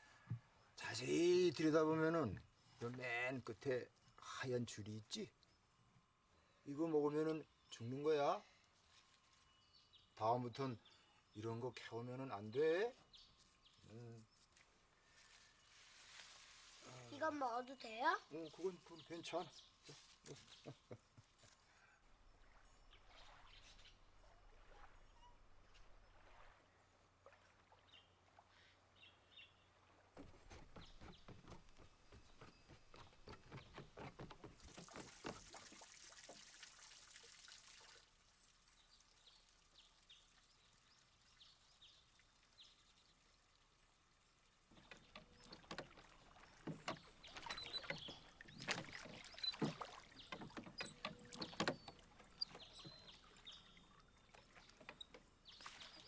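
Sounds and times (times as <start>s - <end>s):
rowboat being rowed: 29.8s - 35.8s, 44.6s - 56.0s
wooden knocks: 30.2s - 35.5s, 44.7s - 53.1s.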